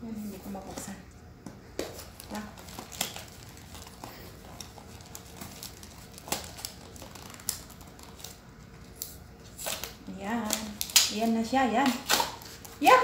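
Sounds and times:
packaging crinkling: 1.9s - 13.0s
sharp packaging snaps: 4.6s - 13.0s.

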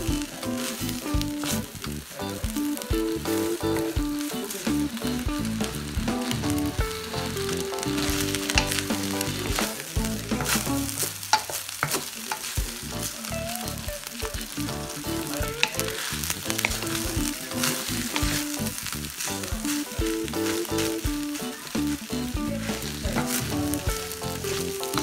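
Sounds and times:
background music with held notes: 0.0s - 11.1s, 12.6s - 25.0s
rice sizzling in a wok: 0.0s - 25.0s
wooden spatula scraping a pan: 15.1s - 25.0s.

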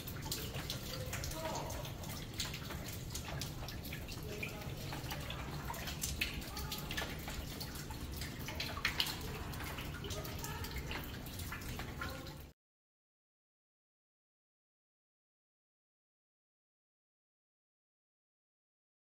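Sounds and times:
water dripping into buckets: 0.0s - 12.6s.

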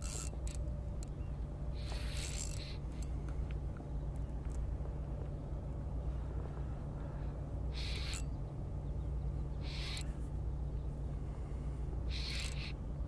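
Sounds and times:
fishing reel winding: 0.0s - 0.6s, 1.8s - 2.8s, 7.8s - 8.3s, 9.7s - 10.1s, 12.1s - 12.8s
steady low rumble: 0.0s - 13.0s.

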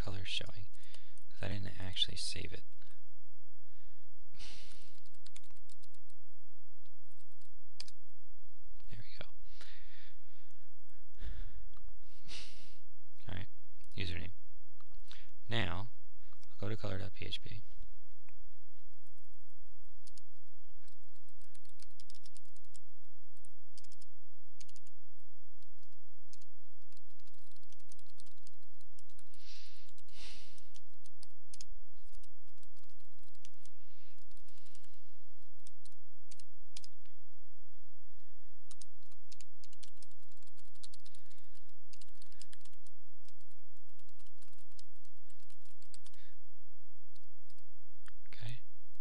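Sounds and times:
steady low hum: 0.0s - 49.0s
computer keyboard typing: 4.9s - 6.1s, 20.8s - 22.8s, 23.4s - 24.9s, 25.6s - 35.0s, 35.6s - 37.0s, 38.7s - 46.2s.

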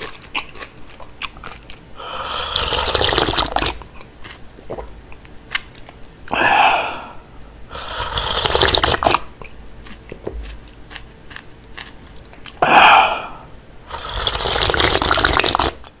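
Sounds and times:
person slurping broth: 2.0s - 3.8s, 6.3s - 9.2s, 12.6s - 15.8s
mouth sound: 6.3s - 9.2s, 12.5s - 15.8s.

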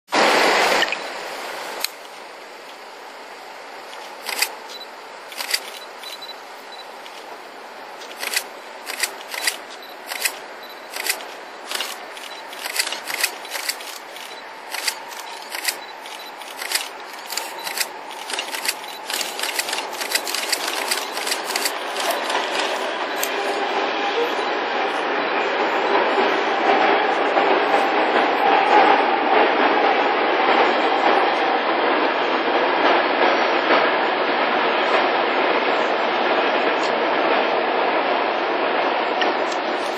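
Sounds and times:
freight train rushing: 0.1s - 39.9s
sharp clicks: 3.9s - 6.3s, 8.0s - 23.4s.

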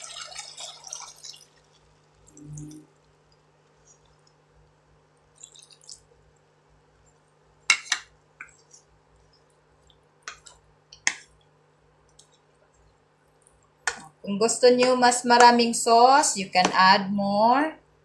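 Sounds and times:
sauce bubbling and popping: 0.0s - 6.5s, 7.2s - 14.2s.

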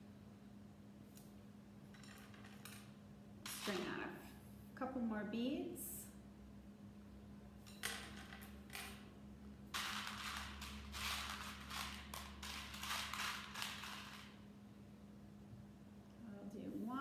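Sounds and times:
beads clattering in a bowl: 9.7s - 14.4s.

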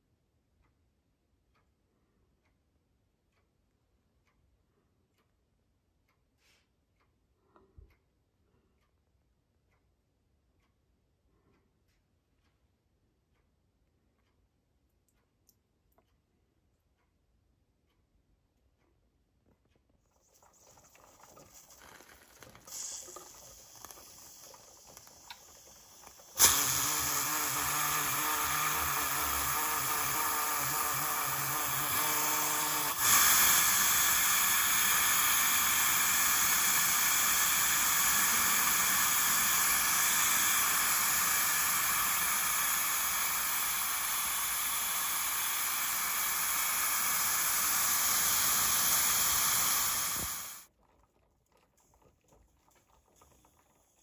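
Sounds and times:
pressure cooker venting steam: 20.1s - 50.7s.

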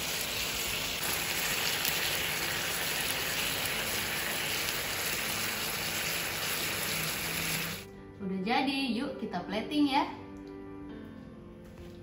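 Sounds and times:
chicken sizzling in a frying pan: 0.0s - 7.9s.

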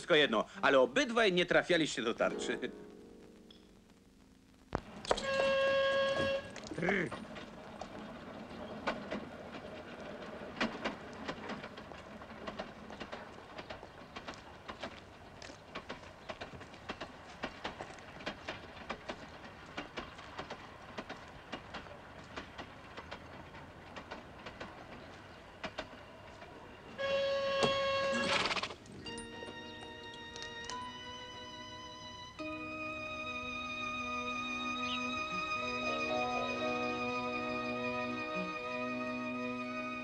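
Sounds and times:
cart wheels rolling: 4.8s - 31.1s
horse hooves clopping: 4.8s - 31.1s.

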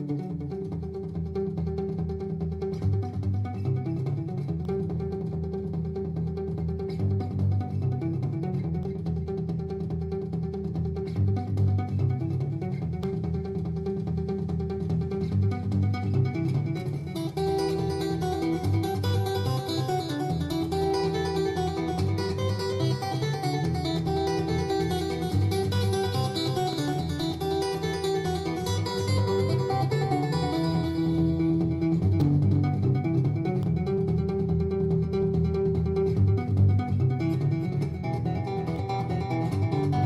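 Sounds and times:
acoustic guitar playing: 11.0s - 40.0s.

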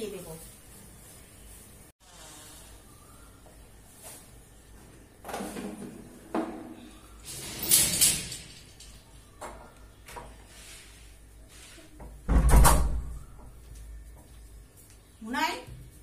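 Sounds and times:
door scraping rattle: 7.2s - 9.0s.

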